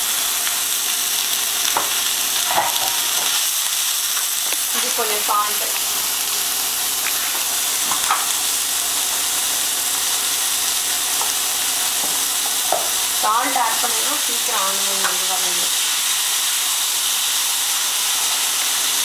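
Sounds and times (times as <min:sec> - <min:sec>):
onion sizzling in oil: 0:00.0 - 0:19.0.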